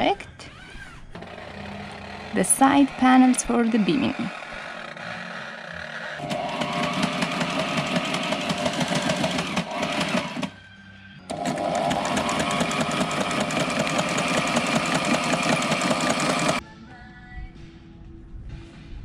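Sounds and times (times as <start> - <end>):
sewing machine stitching: 1.2 - 10.5, 11.3 - 16.6.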